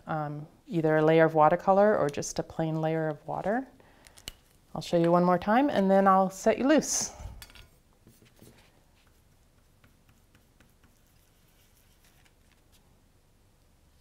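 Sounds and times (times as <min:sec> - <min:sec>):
paintbrush tapping on paper: 0:09.0 - 0:11.2.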